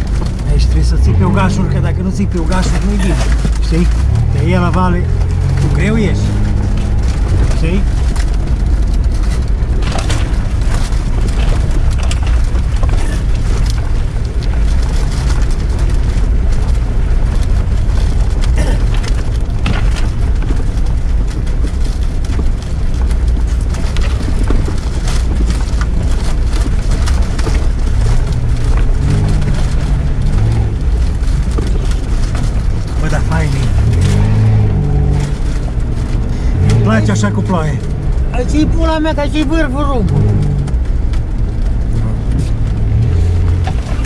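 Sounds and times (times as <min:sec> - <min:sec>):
off-road engine rumbling: 0:00.0 - 0:44.0
vehicle body knocks and rattles: 0:02.4 - 0:34.7.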